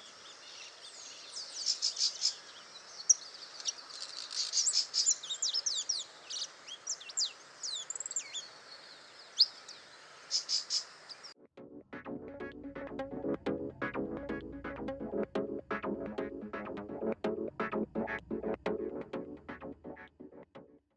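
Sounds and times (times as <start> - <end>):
background hiss: 0.0 - 11.4
finch singing: 0.5 - 8.5, 9.2 - 11.3
electronic music: 11.4 - 20.8.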